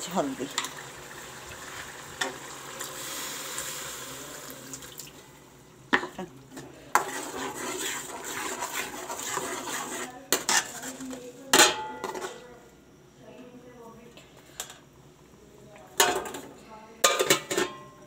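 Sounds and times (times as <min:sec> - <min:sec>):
food sizzling in a pan: 0:00.0 - 0:11.2
metal spoon scraping a pan: 0:06.6 - 0:12.4, 0:17.0 - 0:17.8
spoon clanking on metal pan: 0:07.0 - 0:10.9, 0:11.5 - 0:12.4, 0:17.0 - 0:17.9.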